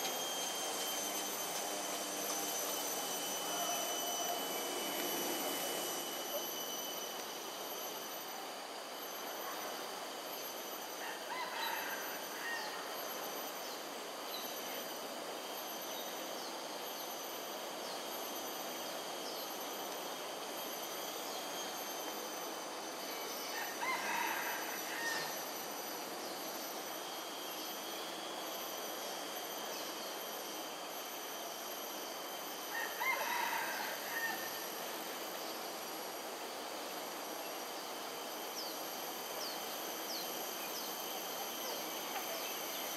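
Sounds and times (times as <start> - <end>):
distant rooster crowing: 11.0 - 12.9, 23.5 - 25.5, 32.6 - 34.8
background hiss: 11.8 - 42.9.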